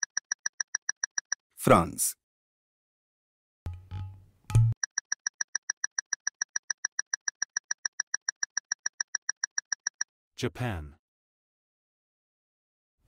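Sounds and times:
rapid electronic timer ticks: 0:00.0 - 0:01.4, 0:04.7 - 0:10.1.

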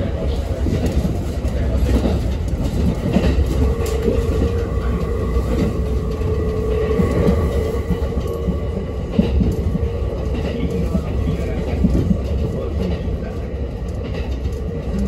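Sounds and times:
electric train rumbling on track: 0:00.0 - 0:15.0
train hum: 0:00.0 - 0:15.0.

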